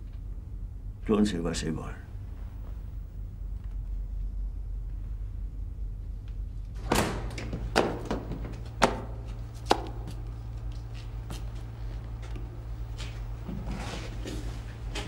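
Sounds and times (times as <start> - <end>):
steady low hum: 0.0 - 15.0
sharp knocks: 6.9 - 10.1.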